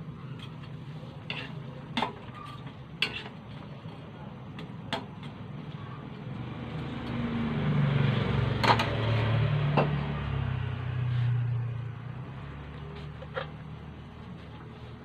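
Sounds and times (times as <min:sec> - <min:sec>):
vehicle engine passing: 0:06.4 - 0:14.2.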